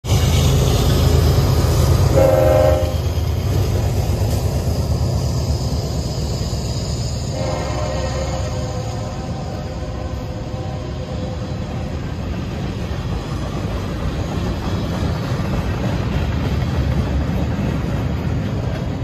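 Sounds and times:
diesel locomotives rumbling past: 0:00.0 - 0:19.0
train horn blasts: 0:02.1 - 0:03.1, 0:07.3 - 0:12.2.

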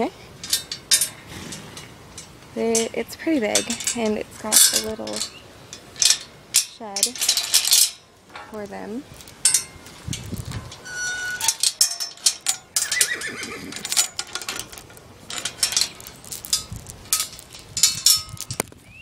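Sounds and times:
metal gate clanking and rattling: 0:00.0 - 0:18.8
horse whinnying: 0:12.8 - 0:14.0.

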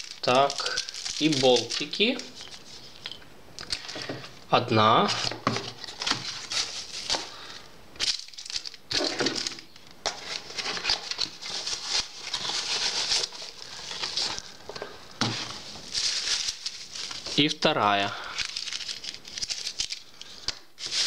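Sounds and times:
bubble wrap crinkling: 0:00.0 - 0:04.4, 0:05.0 - 0:21.0
cardboard boxes rustling: 0:05.0 - 0:07.3, 0:08.4 - 0:17.4.

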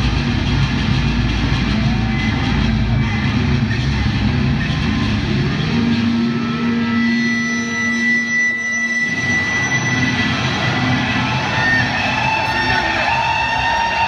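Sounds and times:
deep bass: 0:00.0 - 0:08.1
rock band playing: 0:00.0 - 0:14.0
electric guitar feedback: 0:00.1 - 0:14.0.

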